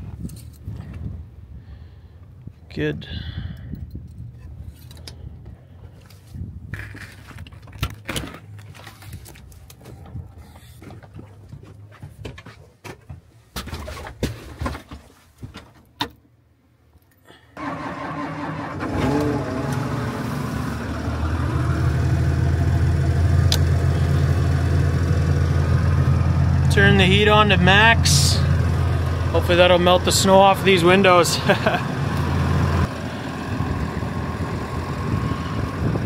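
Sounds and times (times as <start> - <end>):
tractor diesel engine starting and running: 17.6 - 36.0.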